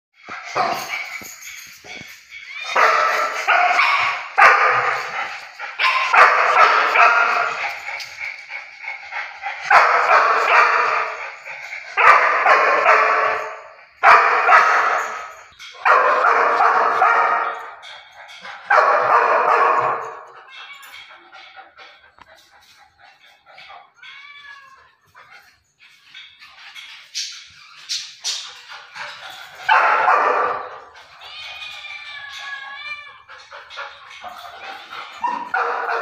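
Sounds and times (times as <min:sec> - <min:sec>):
puppy barking and yipping: 0:00.4 - 0:08.3, 0:09.5 - 0:21.8, 0:23.2 - 0:36.0.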